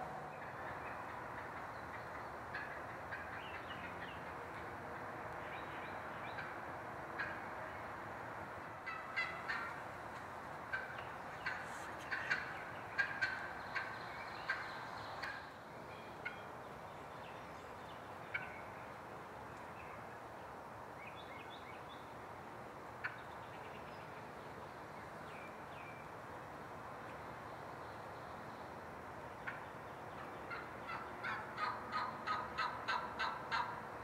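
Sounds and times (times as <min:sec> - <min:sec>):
wild turkey calling: 0:00.0 - 0:04.8, 0:05.4 - 0:06.6, 0:07.2 - 0:07.9, 0:08.6 - 0:15.6, 0:18.3 - 0:18.7, 0:29.4 - 0:33.8.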